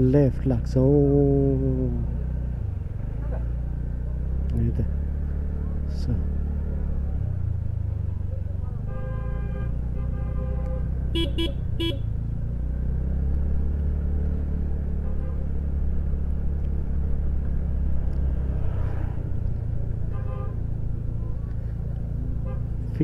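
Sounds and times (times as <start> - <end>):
motorcycle engine rumble: 0.0 - 23.0
vehicle horn beeping: 8.8 - 12.1, 14.9 - 15.6, 20.1 - 20.6.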